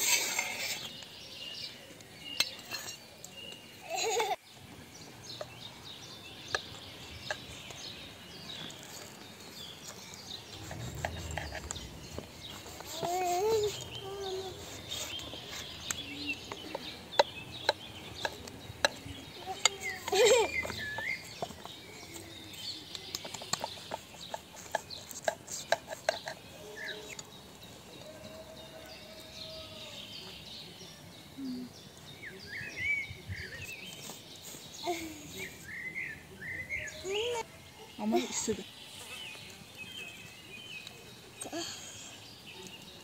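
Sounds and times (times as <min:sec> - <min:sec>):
birds chirping: 0:00.0 - 0:43.0.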